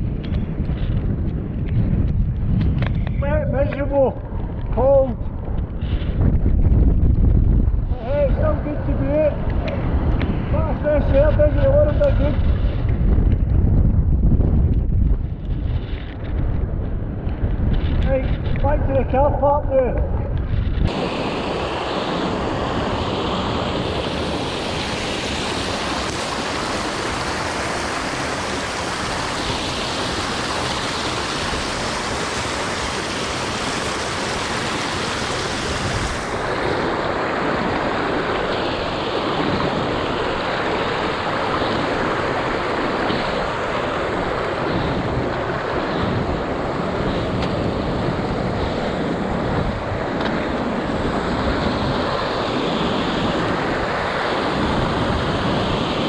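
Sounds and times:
wind buffeting microphone: 0:00.0 - 0:56.0
water rushing over rocks: 0:20.9 - 0:56.0.

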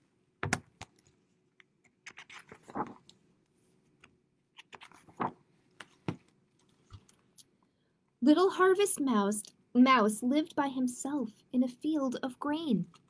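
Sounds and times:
book pages rustling: 0:01.8 - 0:07.2.

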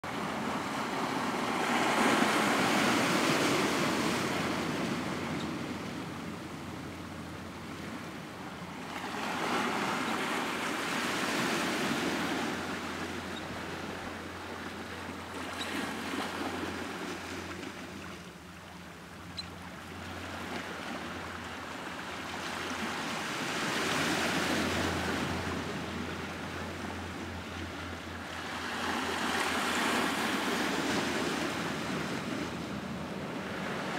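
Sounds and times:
small waves washing on cobble shore: 0:00.1 - 0:05.3, 0:08.7 - 0:17.9.

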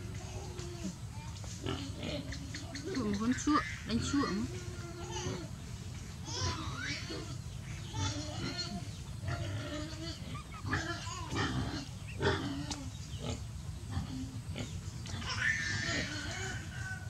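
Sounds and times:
baby monkey grunting and squeaking: 0:06.2 - 0:16.6.

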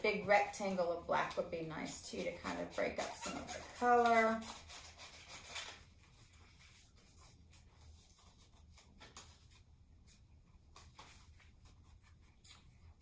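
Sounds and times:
scissors cutting paper: 0:00.1 - 0:06.4.

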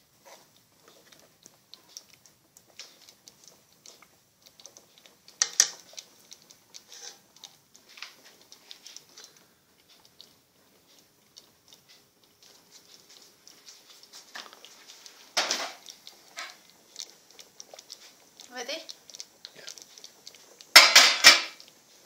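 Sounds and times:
ladle clattering: 0:04.7 - 0:09.4, 0:13.8 - 0:17.1, 0:20.7 - 0:21.7
metal ladle stirring in steel pot: 0:05.3 - 0:09.2.

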